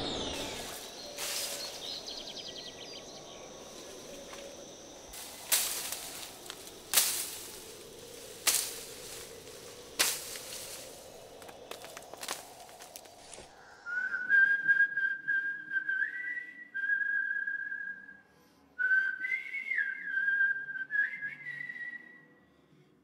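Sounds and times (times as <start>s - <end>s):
faint outdoor background: 0.0s - 23.0s
sharp cracking strikes: 5.1s - 13.1s.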